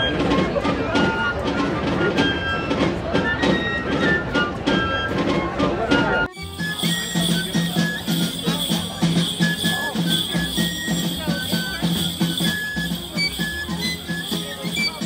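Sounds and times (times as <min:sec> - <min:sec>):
folk dance music: 0:00.0 - 0:15.0
bells jingling on dancers' legs: 0:06.3 - 0:15.0.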